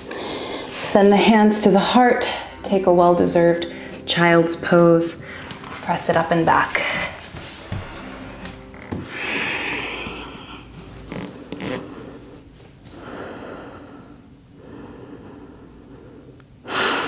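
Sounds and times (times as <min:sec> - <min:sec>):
person breathing slowly: 0:00.0 - 0:00.9, 0:06.9 - 0:10.9, 0:11.6 - 0:17.0.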